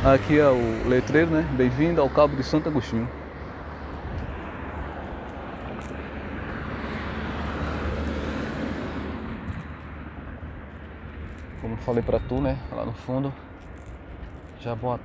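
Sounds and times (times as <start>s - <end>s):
wind noise on microphone: 3.8s - 12.8s.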